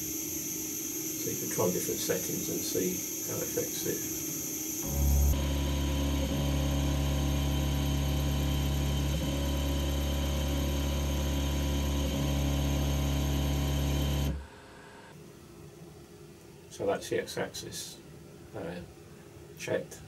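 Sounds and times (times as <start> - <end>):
stepper motors buzzing hum: 0.0 - 14.4.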